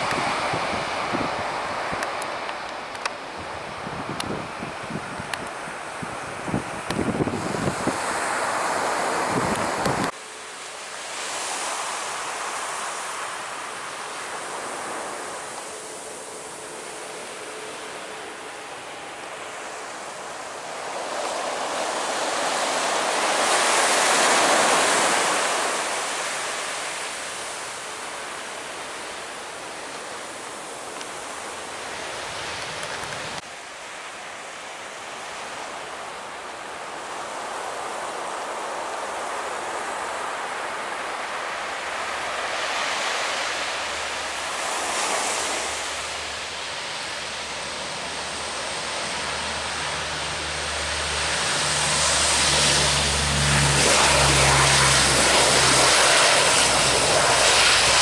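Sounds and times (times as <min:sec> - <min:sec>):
jet engines passing overhead: 0:00.0 - 0:33.5, 0:34.9 - 0:58.0
turboprop aircraft running: 0:47.5 - 0:58.0.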